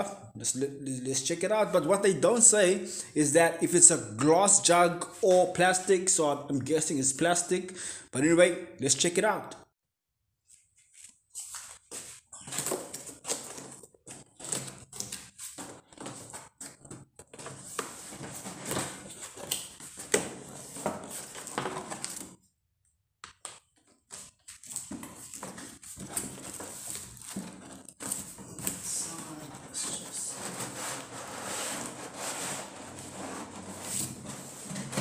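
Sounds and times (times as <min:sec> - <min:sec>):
cardboard scraping and rustling: 0:11.4 - 0:22.4, 0:24.1 - 0:35.0.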